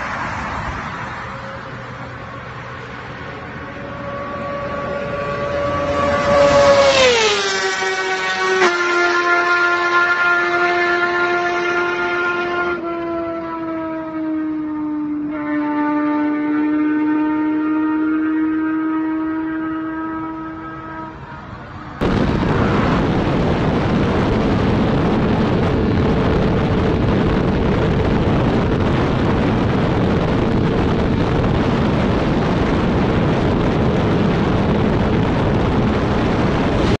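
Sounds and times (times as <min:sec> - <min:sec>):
wind buffeting microphone: 0:00.0 - 0:14.9, 0:21.7 - 0:37.0
motorcycle engine: 0:01.1 - 0:37.0.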